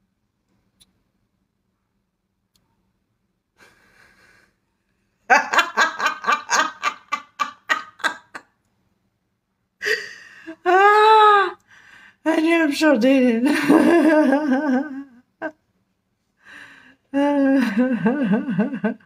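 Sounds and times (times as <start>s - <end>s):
woman laughing hard: 5.3s - 8.5s, 13.4s - 15.2s, 17.2s - 19.0s.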